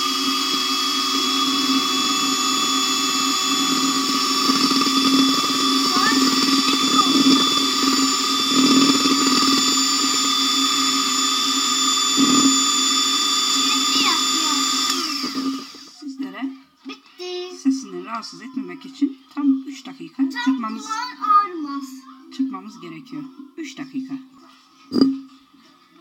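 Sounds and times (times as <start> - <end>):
electric mixer whipping cream: 0.0 - 16.0.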